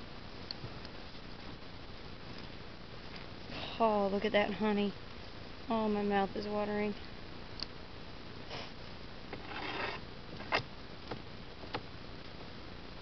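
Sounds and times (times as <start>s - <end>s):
low steady hiss: 0.0s - 13.0s
breathy sniffs: 8.5s - 8.8s.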